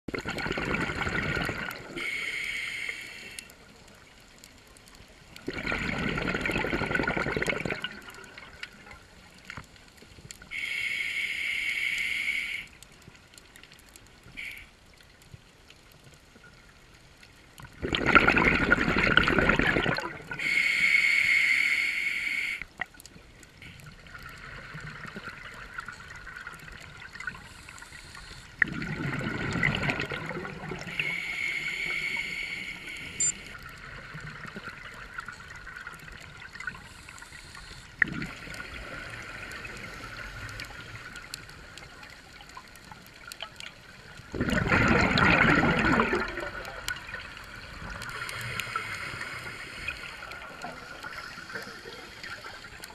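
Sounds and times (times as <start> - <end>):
bubbling exhalations underwater: 0.1 - 2.0, 5.4 - 8.6, 17.7 - 20.4, 28.6 - 31.0, 38.0 - 39.7, 44.2 - 47.8
regulator inhalation hiss: 2.0 - 3.5, 10.5 - 12.8, 20.4 - 22.6, 30.8 - 33.6, 48.0 - 52.8.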